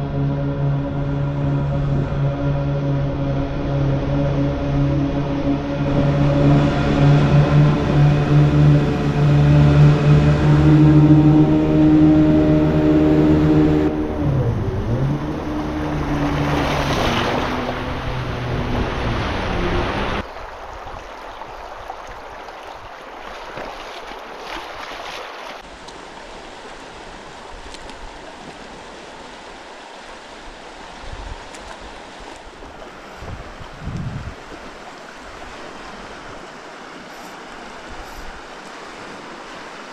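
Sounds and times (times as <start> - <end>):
loud low hum: 0.0 - 20.2
wind on microphone: 0.0 - 21.2, 31.0 - 34.7
river water flowing: 0.0 - 39.9.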